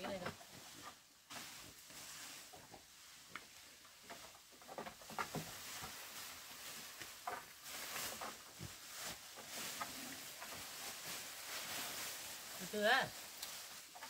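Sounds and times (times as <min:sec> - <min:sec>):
rustling: 0:00.0 - 0:14.0.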